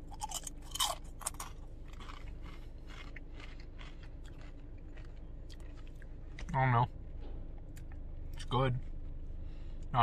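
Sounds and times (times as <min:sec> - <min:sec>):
person chewing crunchy chips: 0:00.0 - 0:06.6.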